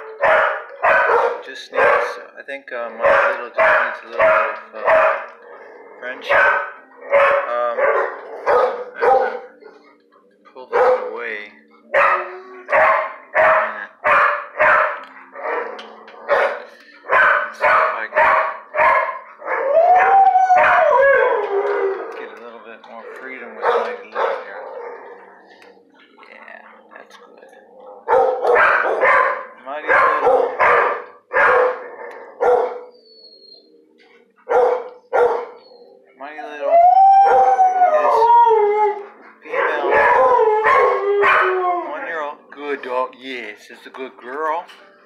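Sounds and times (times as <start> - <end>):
dog barking: 0.0 - 2.2, 2.9 - 5.4, 6.2 - 9.8, 10.7 - 11.2, 11.9 - 21.2, 23.0 - 25.3, 27.8 - 32.9, 34.4 - 35.9, 39.5 - 41.5.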